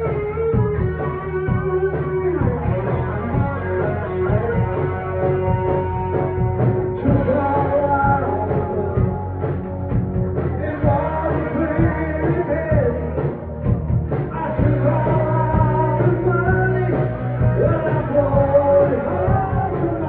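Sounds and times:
bass guitar: 0.0s - 20.0s
drum kit: 0.0s - 20.0s
electric guitar: 0.0s - 20.0s
person singing: 6.9s - 9.6s, 10.5s - 13.4s, 14.2s - 20.0s.

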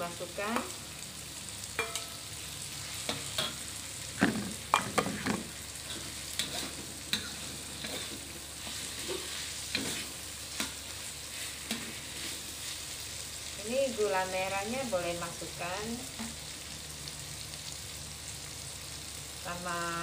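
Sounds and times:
food sizzling in a wok: 0.0s - 20.0s
metal spatula scraping wok: 4.2s - 13.0s.

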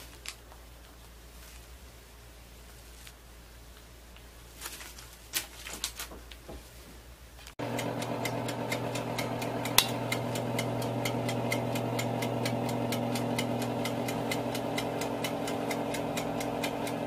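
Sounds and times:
fast even ticking: 7.6s - 17.0s
oven motor hum: 7.6s - 17.0s.

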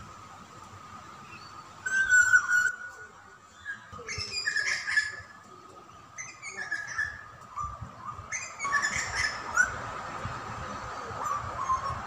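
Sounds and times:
birds chirping: 0.6s - 9.9s.

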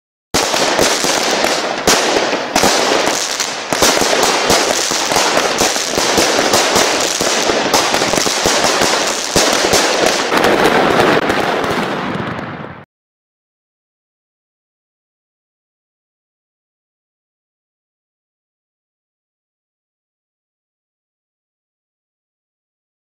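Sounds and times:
fireworks cracking and banging: 0.4s - 12.9s.

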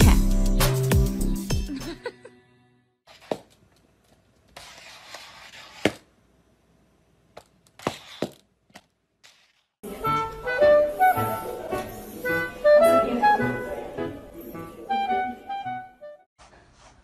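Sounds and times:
music: 0.0s - 3.0s, 9.8s - 16.3s.

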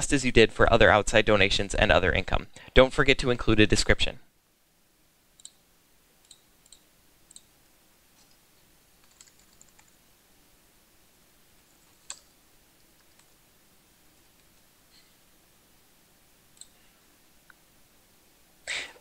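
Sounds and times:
computer mouse clicks: 5.4s - 5.6s, 6.2s - 7.5s, 9.0s - 10.0s, 11.7s - 13.3s, 16.6s - 16.8s
keyboard keystrokes: 9.0s - 9.9s.

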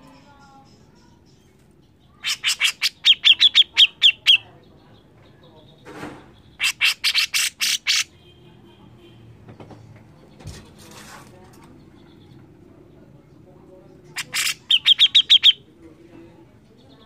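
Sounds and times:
bird calling in rapid sharp notes: 14.2s - 15.6s.

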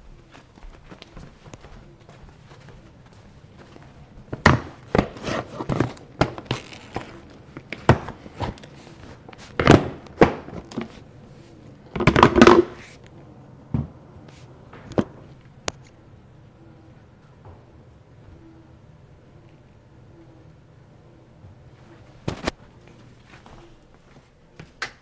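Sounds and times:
flip-flop footsteps on tile: 0.0s - 11.0s.

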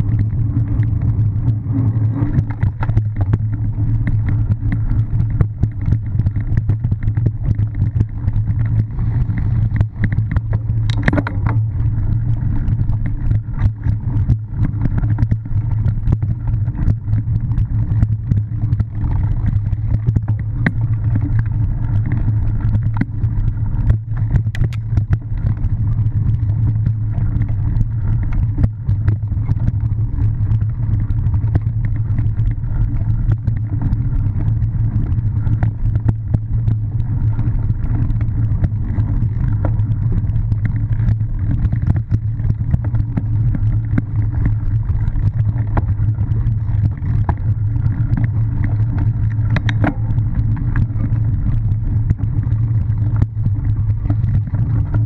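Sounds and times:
bike knocking and rattling: 0.0s - 55.0s
wind rushing over microphone: 0.0s - 55.0s.

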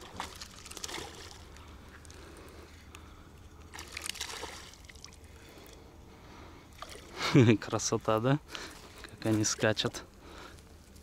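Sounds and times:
fish splashing at water surface: 0.0s - 1.5s, 3.7s - 5.2s.

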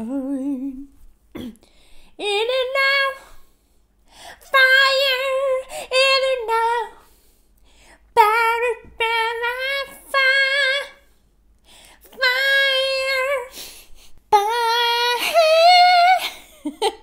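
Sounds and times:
woman singing unaccompanied: 0.0s - 1.0s, 2.2s - 3.4s, 4.4s - 7.1s, 8.1s - 11.1s, 12.0s - 13.6s, 14.3s - 16.5s.

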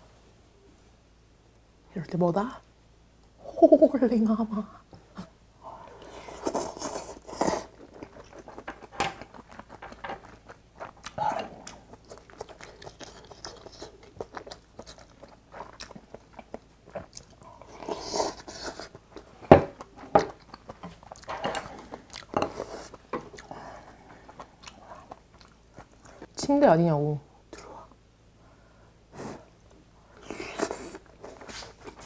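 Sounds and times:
wet chewing with mouth clicks: 6.0s - 26.4s.

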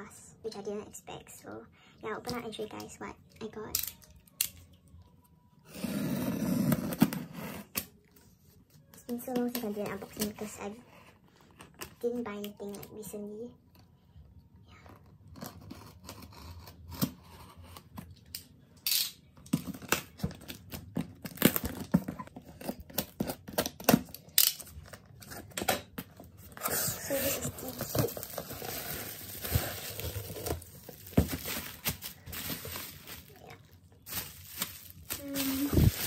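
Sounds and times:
cardboard tearing and crinkling: 19.6s - 24.2s, 26.3s - 36.0s.

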